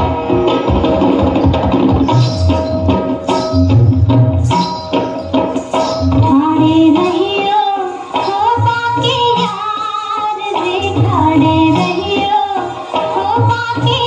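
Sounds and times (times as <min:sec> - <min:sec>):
drum accompaniment: 0:00.0 - 0:14.0
woman singing: 0:06.2 - 0:14.0.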